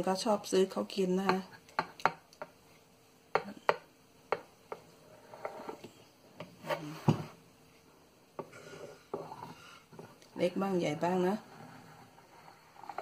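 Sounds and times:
light rubbing: 0:05.0 - 0:05.9.

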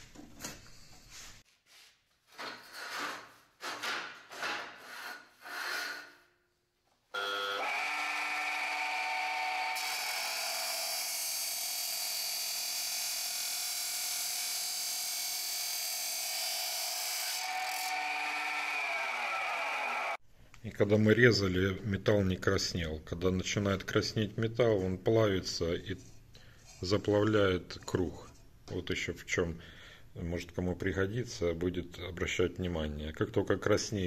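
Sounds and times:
cut-off saw motor humming: 0:07.2 - 0:15.8, 0:17.0 - 0:20.2
saw wheel grinding through steel: 0:07.6 - 0:13.5, 0:17.3 - 0:20.1.

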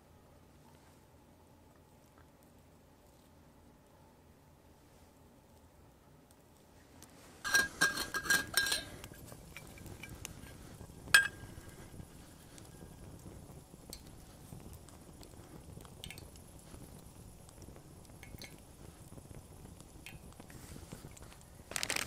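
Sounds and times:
metal bottle cap clinking: 0:07.5 - 0:08.9.

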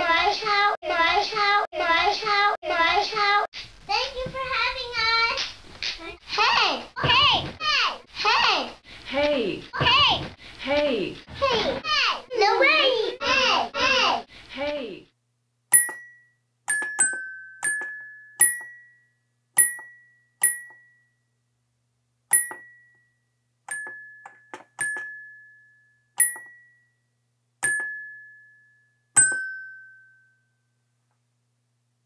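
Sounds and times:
slow chime melody: 0:15.8 - 0:21.4, 0:22.3 - 0:30.8.

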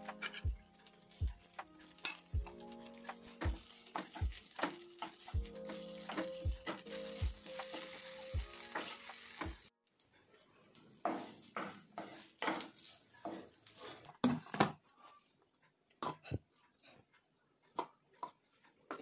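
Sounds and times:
background music: 0:00.0 - 0:09.7
wooden spatula scraping a pan: 0:00.0 - 0:09.7, 0:11.0 - 0:14.2
fried rice sizzling in a pan: 0:00.0 - 0:09.8, 0:10.8 - 0:14.1.

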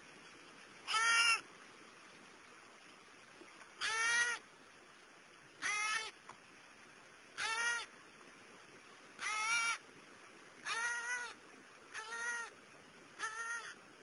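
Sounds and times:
crow calling: 0:09.2 - 0:09.8.

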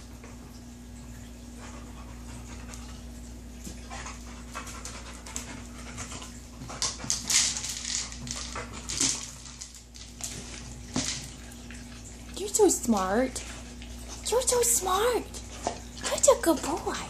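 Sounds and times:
dog panting: 0:01.6 - 0:09.6.

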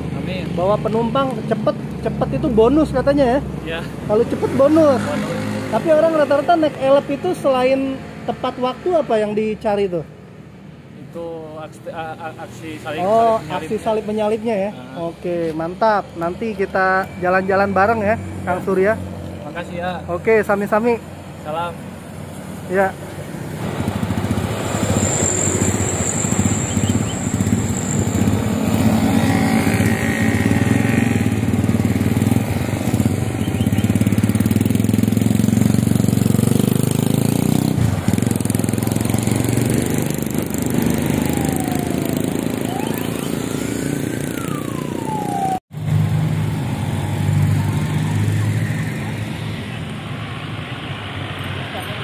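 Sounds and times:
truck engine passing: 0:00.0 - 0:09.1, 0:17.4 - 0:52.0
motor vehicles passing: 0:00.0 - 0:52.0
rising and falling whine: 0:40.8 - 0:49.2.

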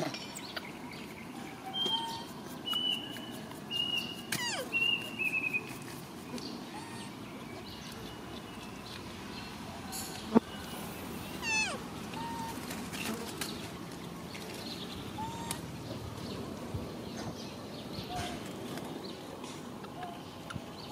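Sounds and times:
macaque squeal: 0:01.7 - 0:02.4, 0:03.9 - 0:05.5, 0:06.7 - 0:07.2, 0:11.4 - 0:12.6, 0:15.2 - 0:15.6.

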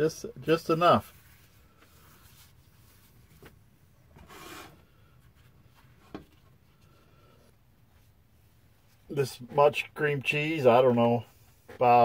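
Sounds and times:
rubbing scrape: 0:04.2 - 0:04.8.

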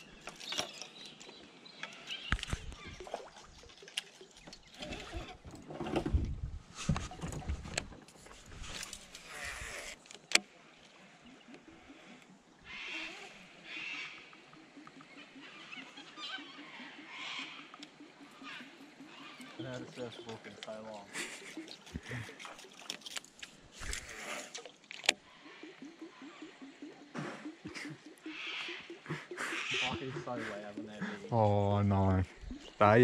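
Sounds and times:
harsh animal calls: 0:11.6 - 0:22.7, 0:25.2 - 0:33.0.

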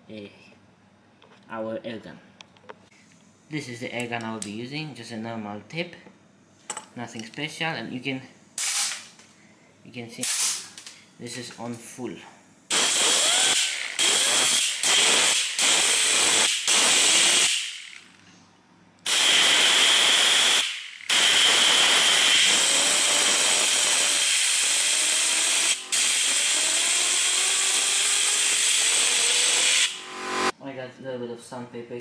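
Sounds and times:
spinning wheel whine: 0:20.7 - 0:30.5.

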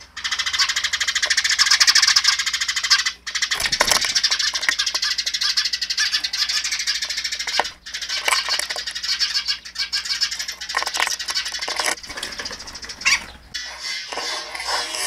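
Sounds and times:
birds chirping and chattering: 0:00.0 - 0:15.0
bird wing flutter: 0:03.5 - 0:04.9.

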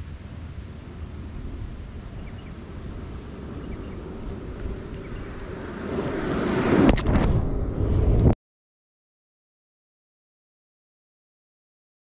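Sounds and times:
low wind rumble: 0:00.0 - 0:08.4
skateboard wheels on asphalt: 0:00.0 - 0:08.4.

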